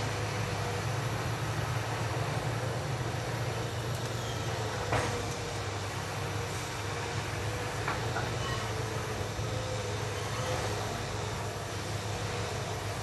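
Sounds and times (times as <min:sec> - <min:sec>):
distant excavator diesel engine: 0:00.0 - 0:13.0.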